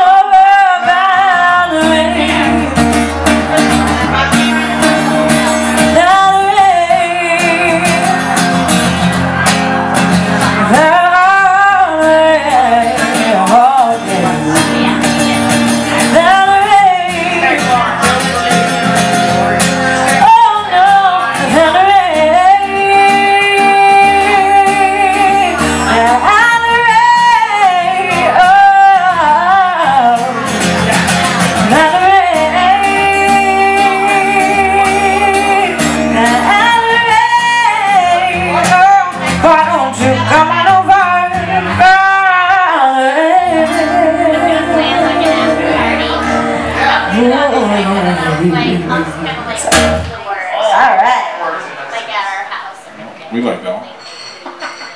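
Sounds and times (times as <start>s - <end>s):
woman singing: 0.0s - 3.4s, 4.9s - 8.6s, 10.4s - 17.9s, 20.0s - 30.6s, 31.4s - 50.1s
strummed acoustic guitar: 0.0s - 51.7s.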